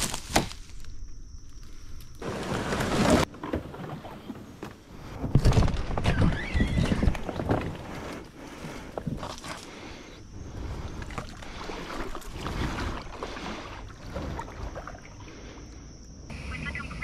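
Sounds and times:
branches and leaves rustling: 0.0 - 13.9
kayak bumping and scraping: 2.2 - 10.1, 10.8 - 15.1.

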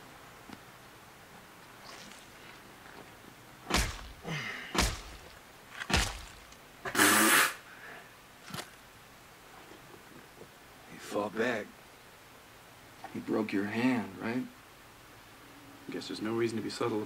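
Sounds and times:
dull thuds: 1.8 - 6.6.

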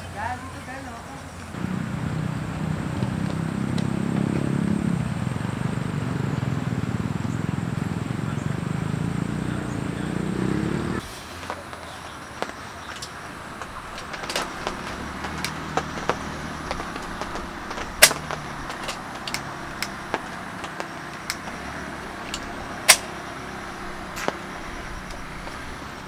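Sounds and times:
metal lantern clicks and clanks: 18.0 - 20.0, 22.2 - 23.2.

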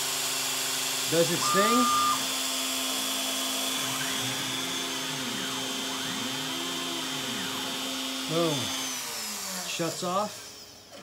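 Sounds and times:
router motor running: 0.0 - 11.0
stepper motors whining: 1.0 - 11.0.

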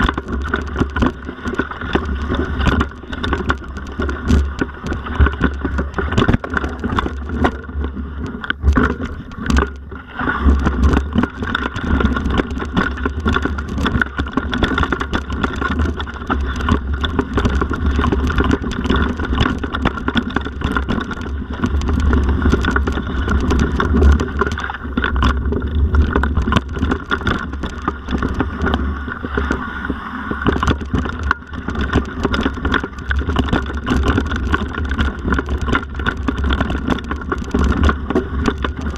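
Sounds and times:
bike rattles and knocks: 0.0 - 29.7, 30.3 - 38.9
bike tyres rumbling on trail: 0.0 - 38.9
wind noise on microphone: 0.0 - 38.9.

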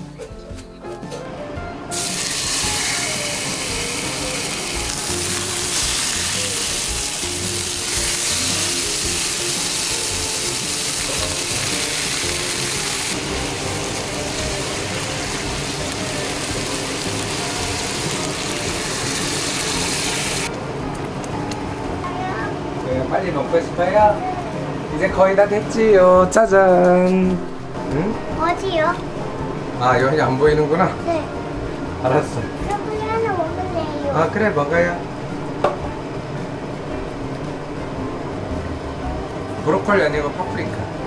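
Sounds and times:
meat sizzling in a frying pan: 1.9 - 20.5.

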